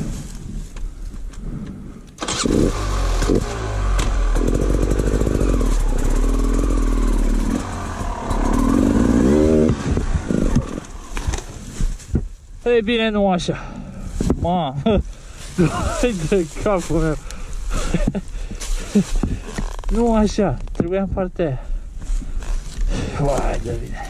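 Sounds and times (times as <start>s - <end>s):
motorcycle engine revving: 2.2s - 11.7s.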